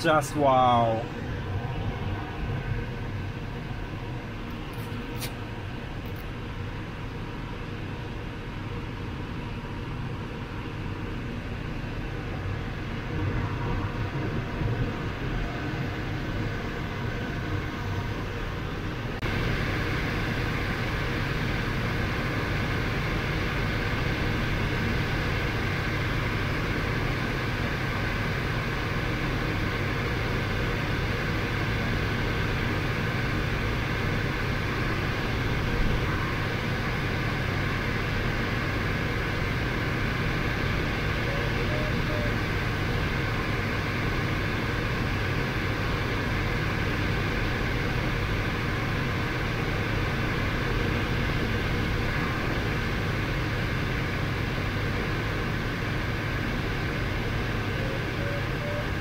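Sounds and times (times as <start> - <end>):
airflow rushing over canopy: 0.0 - 57.8
faint steady whistle: 41.0 - 42.5, 57.6 - 59.0.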